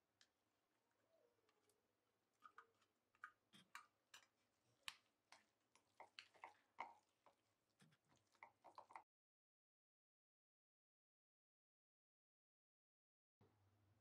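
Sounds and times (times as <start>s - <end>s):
utensil stirring tuna in bowl: 2.3s - 9.0s.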